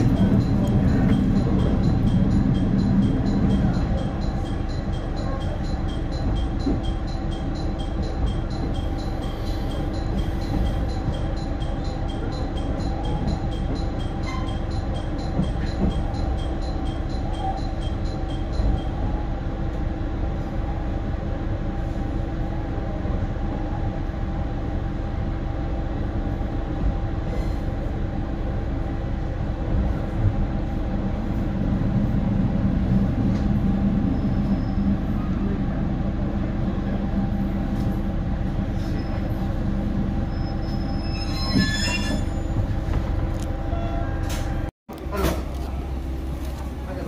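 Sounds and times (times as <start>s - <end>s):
diesel railcar humming and rumbling: 0.0s - 47.0s
train wheels squealing: 0.1s - 19.3s, 33.6s - 35.5s, 38.7s - 43.1s.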